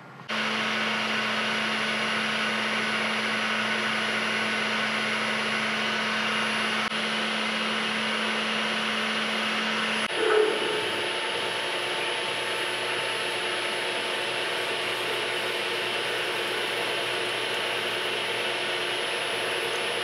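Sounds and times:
milling machine motor hum: 0.2 - 20.0.

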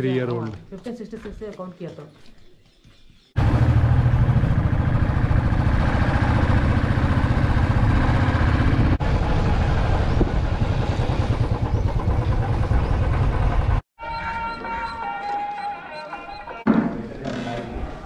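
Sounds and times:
motorcycle engine running: 3.4 - 13.8.

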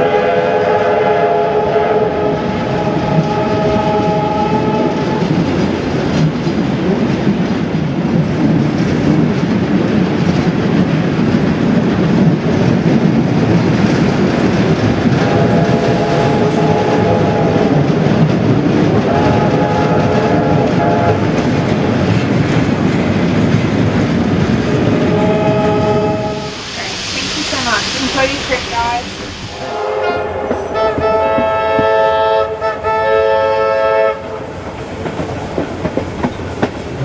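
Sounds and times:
train whistle chord: 0.0 - 5.3, 15.2 - 17.8, 19.1 - 21.2, 24.8 - 26.6, 29.6 - 34.4
train wheels rumbling on track: 0.0 - 37.0.

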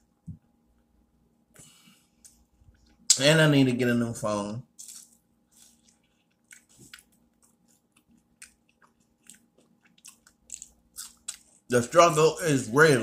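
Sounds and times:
person chewing food: 4.8 - 11.7
wet mouth clicks and smacks: 6.3 - 11.6.

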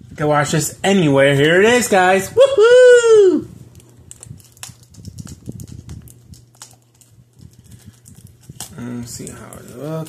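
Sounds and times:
plastic wrap clicks and crinkles: 3.7 - 10.0.

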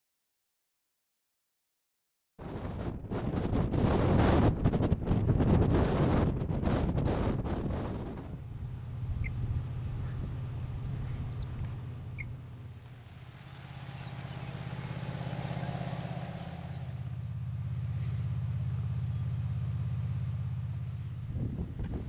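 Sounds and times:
wind buffeting microphone: 2.4 - 18.1, 21.1 - 22.0
short bird chirps: 11.0 - 12.4.

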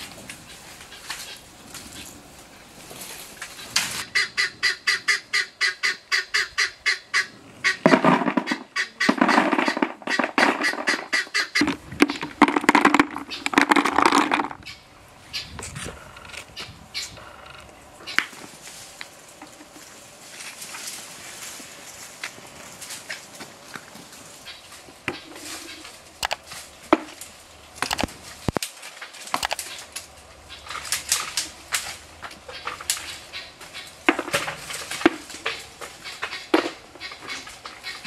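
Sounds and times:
fowl loud drawn-out calls: 3.6 - 12.3
fowl clucking: 4.0 - 15.5, 35.0 - 38.0.

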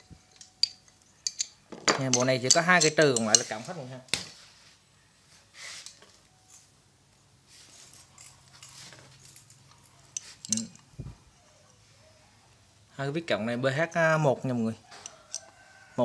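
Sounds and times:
screwdrivers clinking: 0.0 - 3.8, 7.8 - 10.9, 14.9 - 15.6.

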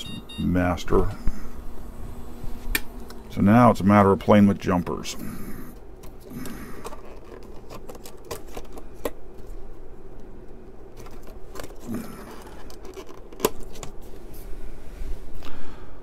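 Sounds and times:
steady low hum: 0.0 - 16.0
clicks and scrapes of connectors: 6.0 - 9.5, 11.0 - 14.0.

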